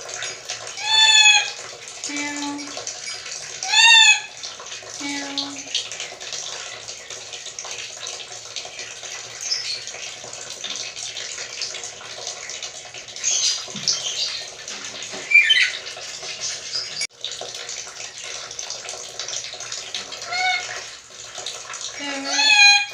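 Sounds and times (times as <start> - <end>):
parrot squeaky calls: 0.8 - 1.6, 3.0 - 4.3, 15.2 - 15.9, 20.2 - 20.8, 22.1 - 22.9.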